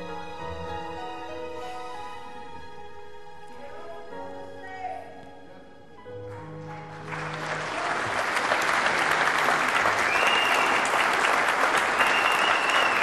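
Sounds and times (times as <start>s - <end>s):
soft background music: 0.0s - 8.3s
audience applause: 6.2s - 13.0s.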